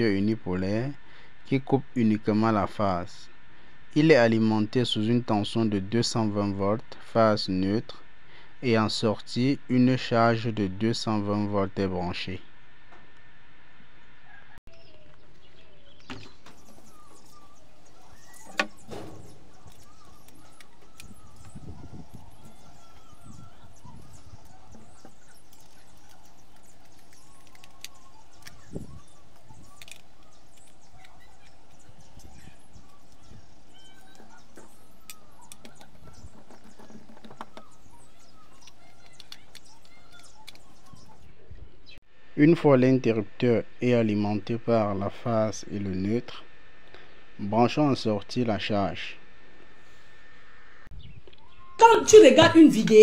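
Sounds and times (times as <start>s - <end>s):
faint bird chirps: 14.2s - 42.0s, 50.9s - 53.0s.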